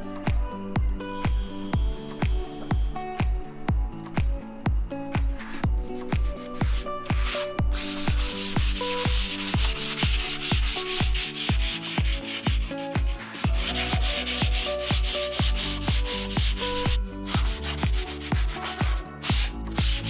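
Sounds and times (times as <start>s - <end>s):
electronic music with kick drum: 0.0s - 20.0s
sandpaper rubbing on plywood: 5.4s - 20.0s.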